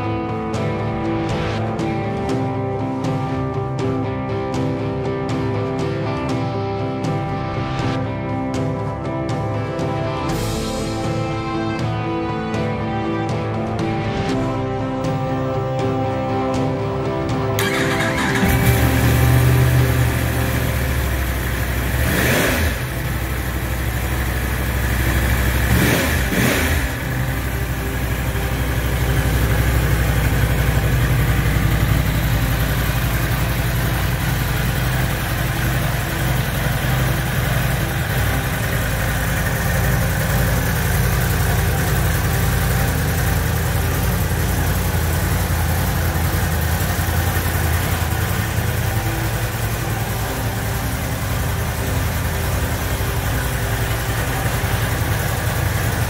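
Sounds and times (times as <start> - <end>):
motorcycle engine idling: 15.1 - 56.0.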